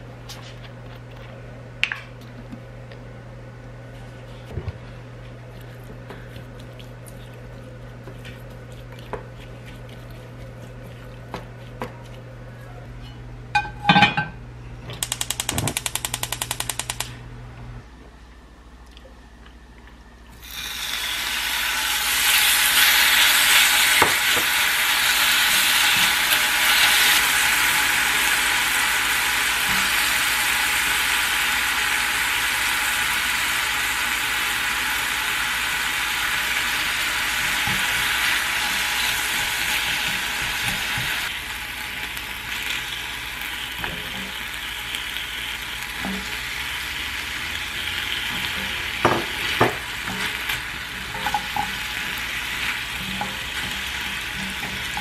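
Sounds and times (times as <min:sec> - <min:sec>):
rapid even ticking: 0:15.0 - 0:17.1
meat sizzling in a skillet: 0:20.4 - 0:55.0.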